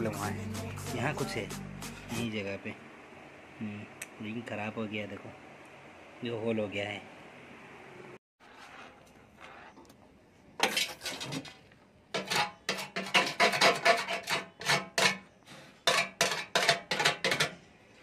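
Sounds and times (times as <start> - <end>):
hand file rasping on metal: 12.2 - 15.2.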